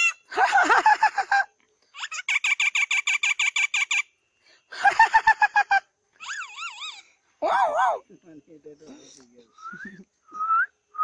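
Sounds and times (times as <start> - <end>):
myna chattering and whistling: 8.9 - 11.0.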